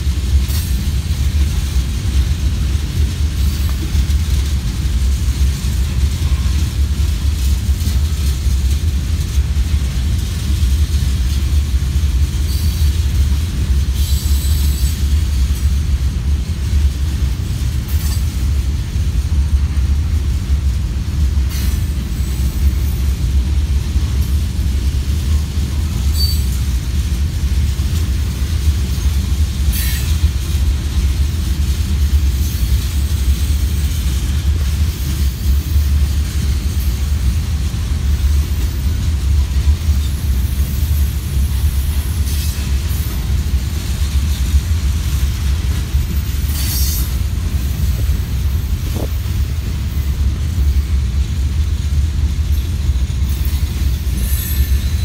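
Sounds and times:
freight train rumbling past: 0:00.0 - 0:55.0
train wheel squeaks: 0:12.4 - 0:13.1, 0:13.8 - 0:15.6, 0:17.8 - 0:18.4, 0:25.3 - 0:26.8, 0:28.8 - 0:30.6, 0:38.2 - 0:51.0, 0:52.4 - 0:55.0.

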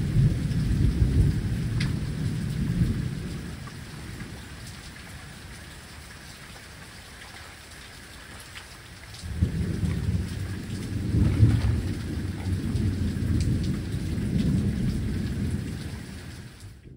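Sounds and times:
thunder rumble: 0:00.0 - 0:05.7, 0:09.2 - 0:16.9
rain patter: 0:00.0 - 0:16.9.

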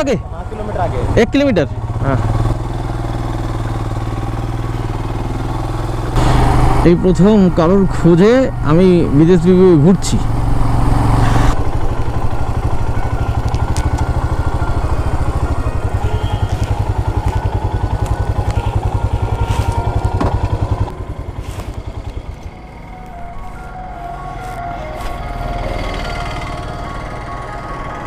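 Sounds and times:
motorcycle engine thudding: 0:15.1 - 0:22.6.

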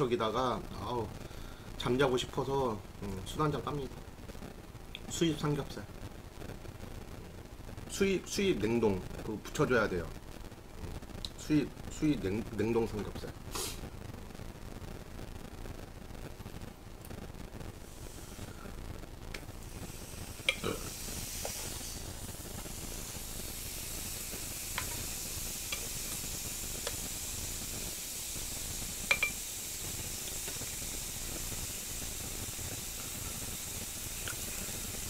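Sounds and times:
meat sizzling on a grill pan: 0:12.7 - 0:13.9, 0:17.7 - 0:35.0
metal tongs clicking on pan: 0:29.1 - 0:29.4.

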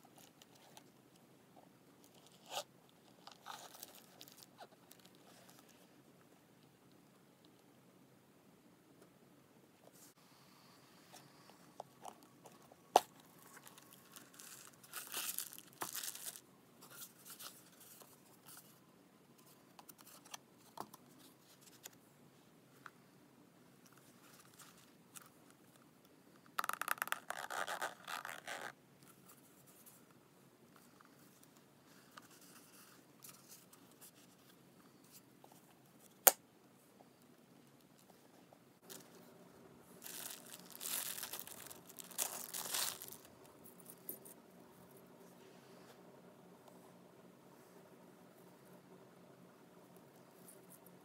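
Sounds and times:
packaging crinkling: 0:13.0 - 0:16.4, 0:40.0 - 0:43.4.

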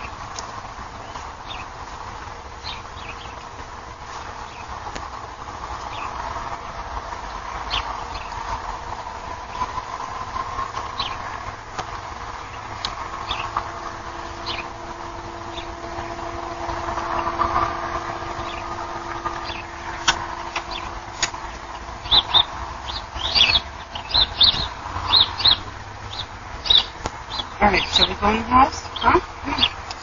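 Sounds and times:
steady low hum: 0:00.0 - 0:30.0
bird chirps: 0:22.0 - 0:29.8.

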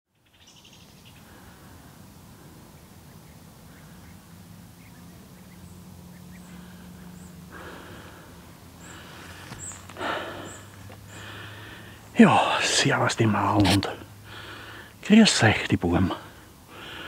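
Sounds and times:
rustle: 0:00.1 - 0:17.0
faint bird chirps: 0:00.2 - 0:01.7, 0:02.6 - 0:07.5
low steady hum: 0:00.5 - 0:17.0.

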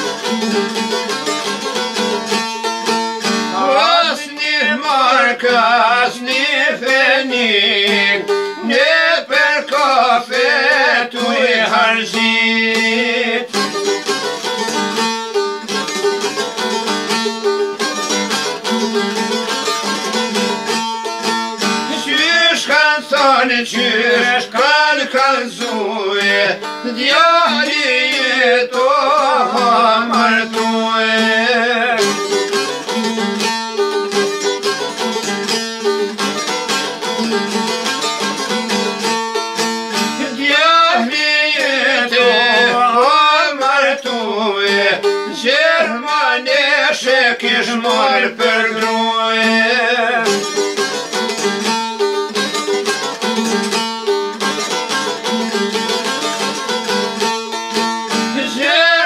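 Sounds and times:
plucked lutes playing: 0:00.0 - 0:59.0
man singing: 0:03.5 - 0:13.7, 0:21.9 - 0:32.9, 0:40.0 - 0:50.6, 0:58.1 - 0:59.0.

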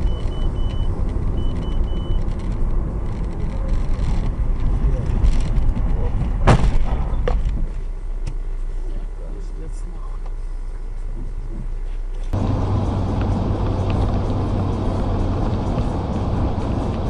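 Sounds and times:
car engine and road rumble: 0:00.0 - 0:17.0
sharp bang of impact: 0:06.4 - 0:07.4.

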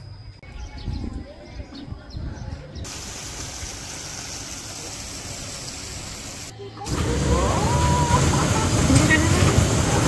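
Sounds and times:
running water rushing: 0:02.9 - 0:10.0.

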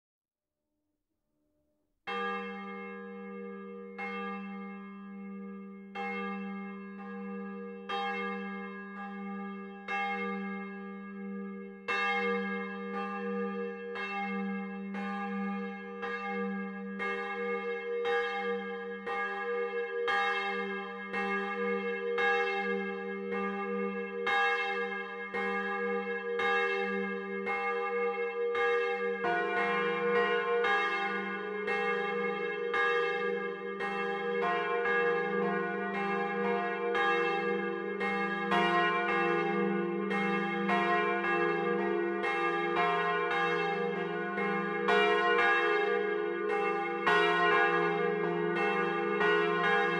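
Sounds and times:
church bells ringing: 0:02.1 - 0:49.9.

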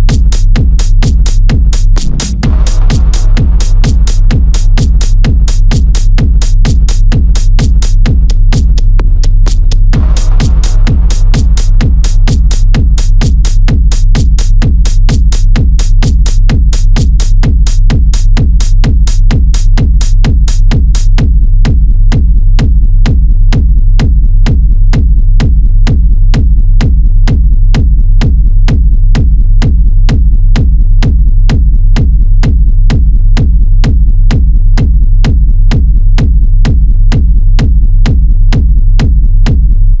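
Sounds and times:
heavy pulsing bass line: 0:00.0 - 0:40.0
kick drum beat: 0:00.0 - 0:40.0.

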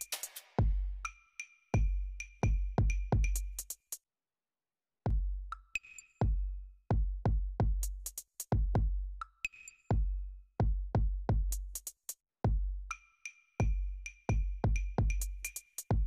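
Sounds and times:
electronic drum beat music: 0:00.0 - 0:01.2, 0:01.8 - 0:03.9, 0:05.1 - 0:09.3, 0:09.9 - 0:13.0, 0:13.6 - 0:16.0.

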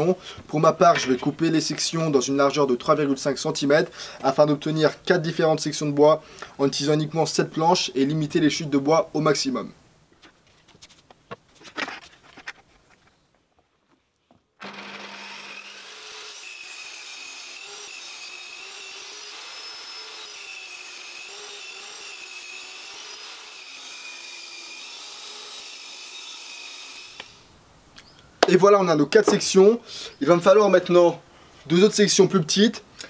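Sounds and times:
table saw ripping wood: 0:14.6 - 0:27.4.

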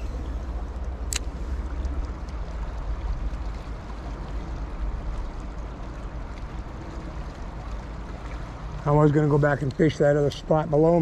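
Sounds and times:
low rumble: 0:00.0 - 0:09.0
river water rushing: 0:00.0 - 0:10.8.

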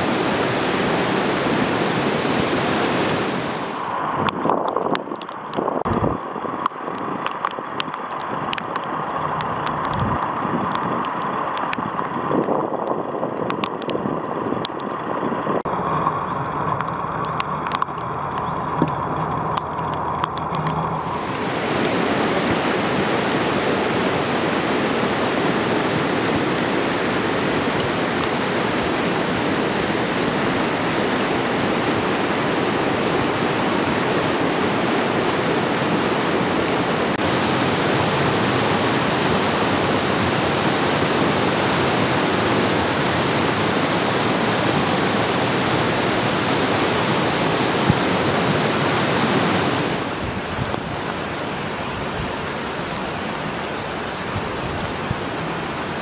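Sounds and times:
floodwater rushing: 0:00.0 - 0:04.3, 0:20.3 - 0:56.0
light ticks: 0:06.6 - 0:12.2, 0:16.4 - 0:20.8.

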